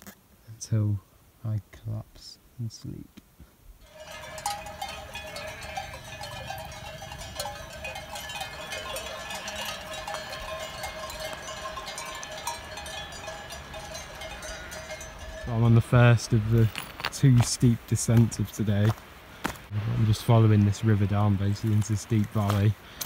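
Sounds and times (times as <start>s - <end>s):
sheep bells clanking: 3.8s - 18.5s.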